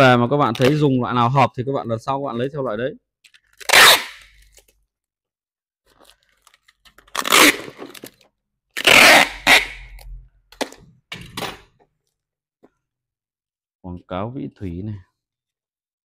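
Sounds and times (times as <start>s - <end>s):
packaging crinkling and crunching: 5.9s - 8.3s.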